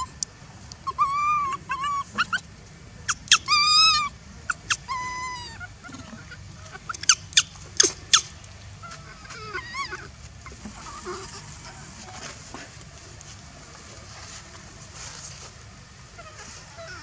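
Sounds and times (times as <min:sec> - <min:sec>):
baby macaque crying: 0:00.8 - 0:02.5, 0:03.1 - 0:12.2, 0:16.2 - 0:17.0.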